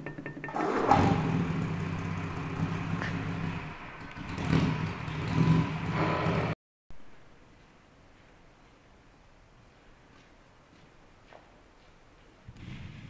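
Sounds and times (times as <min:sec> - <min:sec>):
small motorcycle engine revving: 0:00.0 - 0:06.6.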